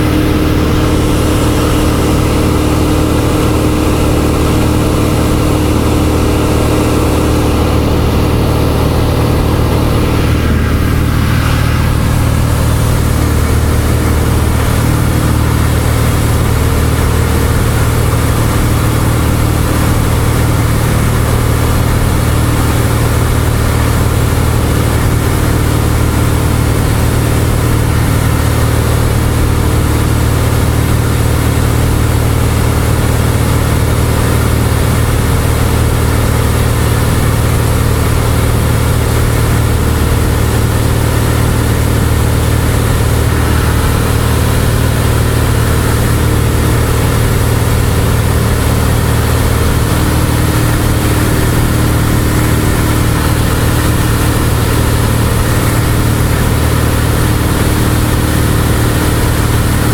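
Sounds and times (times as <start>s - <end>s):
propeller plane engine droning: 0.0s - 59.9s.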